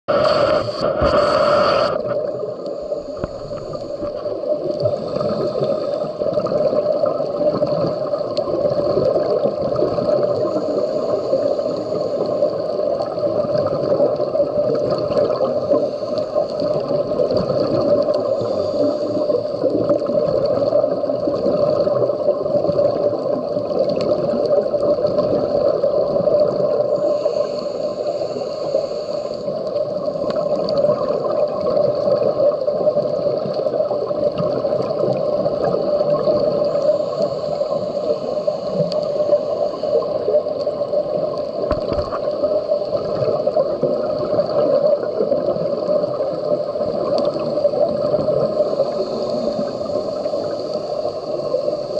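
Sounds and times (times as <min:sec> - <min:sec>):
muffled underwater noise: 0:00.1 - 0:51.9
faint clicks: 0:29.2 - 0:30.9, 0:38.6 - 0:43.0.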